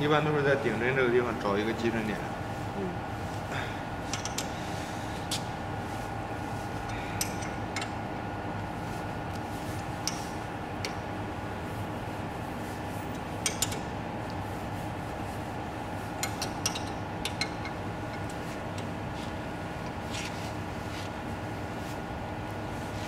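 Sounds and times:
steady background hum: 0.0s - 23.0s
metallic clicks of tool on bolts: 16.2s - 18.3s.

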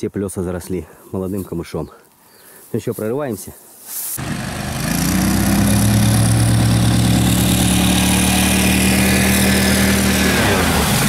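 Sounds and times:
outboard motor running hard: 4.2s - 11.0s.

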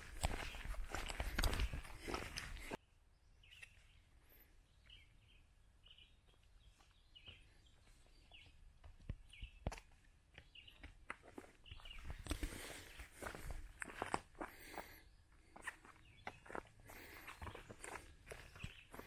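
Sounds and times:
footsteps: 0.0s - 2.8s, 8.8s - 14.9s
faint bird chirps: 2.8s - 8.6s, 14.8s - 19.0s.

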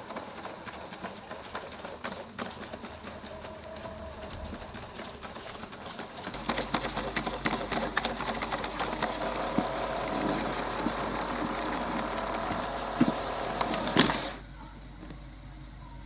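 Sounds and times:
robot vacuum motors whirring: 6.3s - 14.4s.

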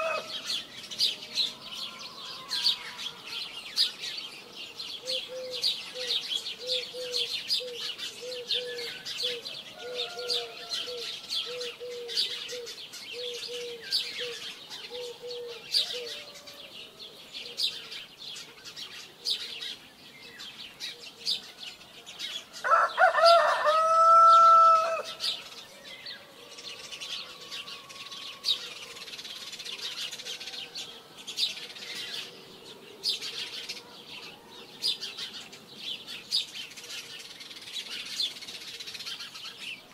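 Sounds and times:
rooster crowing: 0.0s - 0.5s, 1.5s - 3.6s, 9.7s - 11.7s, 14.9s - 16.8s, 22.6s - 25.2s, 26.1s - 29.1s
small birds chirping: 0.0s - 39.9s.

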